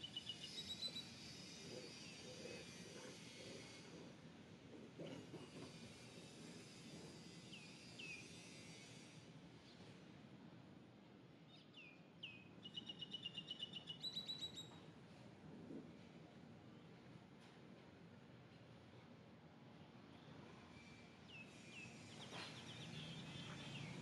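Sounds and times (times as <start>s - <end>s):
downward-sweeping bird chirps: 11.6s - 14.8s
bird trill: 12.6s - 14.7s.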